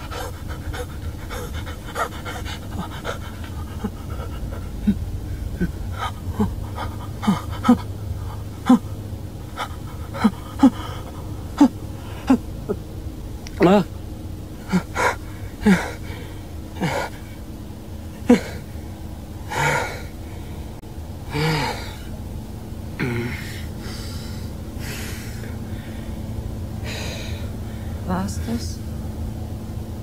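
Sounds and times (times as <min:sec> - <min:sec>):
heavy shaky breaths: 0:00.0 - 0:13.0, 0:14.4 - 0:22.3, 0:23.0 - 0:28.1
low hum: 0:00.0 - 0:30.0.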